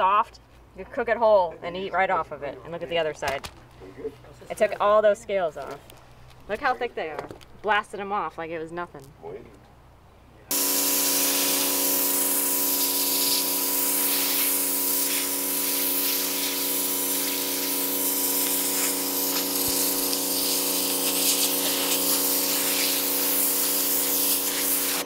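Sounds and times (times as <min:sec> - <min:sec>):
pressure washer hum: 0:10.5 - 0:25.0
pressure washer spray hissing: 0:10.5 - 0:25.0.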